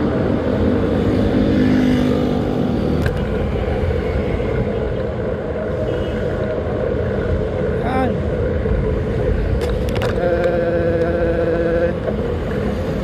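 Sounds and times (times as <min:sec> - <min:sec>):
wind and road noise: 0:00.0 - 0:13.0
motorcycle engine droning: 0:09.1 - 0:13.0.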